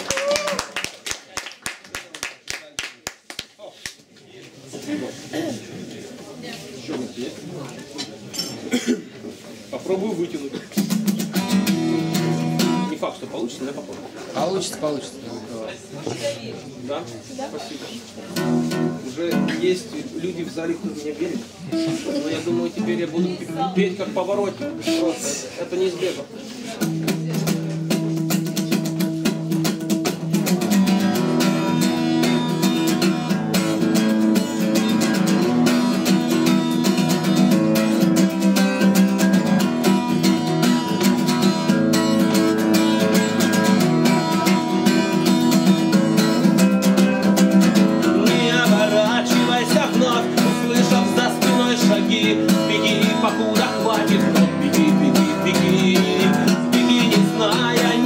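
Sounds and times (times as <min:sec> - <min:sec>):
acoustic guitar strumming chords: 0:10.8 - 0:13.0, 0:18.3 - 0:20.3, 0:21.7 - 0:25.4, 0:26.8 - 0:58.0
person singing: 0:48.0 - 0:58.0.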